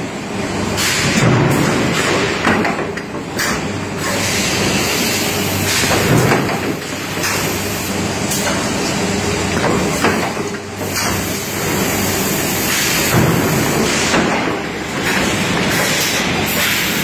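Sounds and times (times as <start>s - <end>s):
machinery and conveyors running: 0.0s - 17.0s
sharp knocks and clatters: 0.8s - 4.2s, 5.7s - 7.5s, 9.6s - 11.2s, 12.8s - 16.8s.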